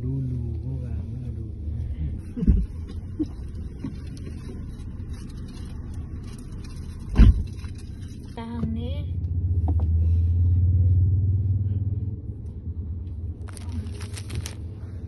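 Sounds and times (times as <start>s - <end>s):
low vehicle rumble: 0.0s - 15.0s
plastic wrapper crinkling: 13.4s - 14.7s.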